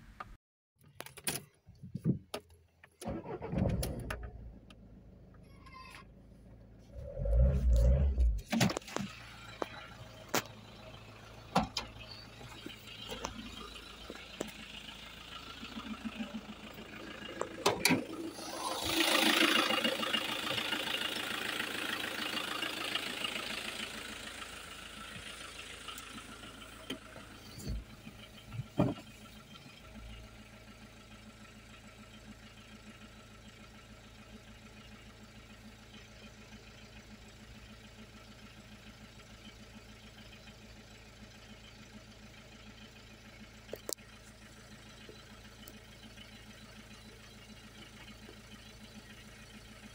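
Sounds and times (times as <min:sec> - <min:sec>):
diesel engine idling: 0:03.0 - 0:49.9
thump: 0:28.8 - 0:29.0.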